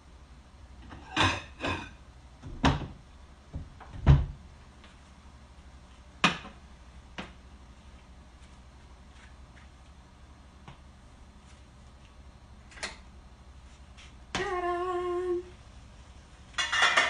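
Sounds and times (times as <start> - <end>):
kitchen knocks and clunks: 0.8 - 4.4, 16.6 - 17.0.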